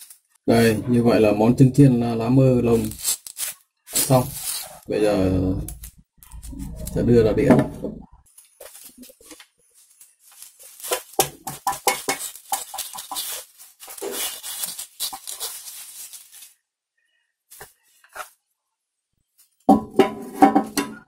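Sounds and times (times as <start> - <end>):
leaf lining rustling: 2.6 - 7.0, 8.3 - 16.6
chopsticks scraping a frying pan: 2.7 - 4.9, 10.6 - 16.5.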